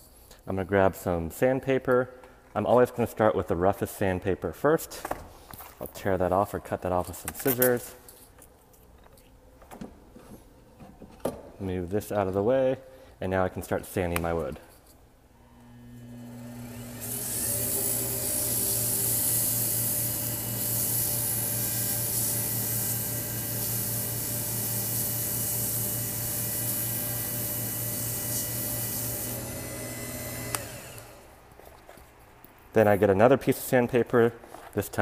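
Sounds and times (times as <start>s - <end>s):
wood lathe motor humming: 15.5s - 31.3s
sandpaper hissing on spinning wood: 17.4s - 29.4s.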